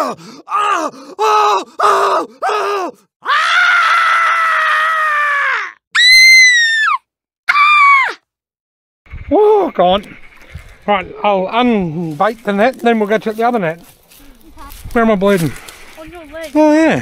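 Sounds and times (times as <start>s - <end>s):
girl screaming and squealing: 0.0s - 8.2s.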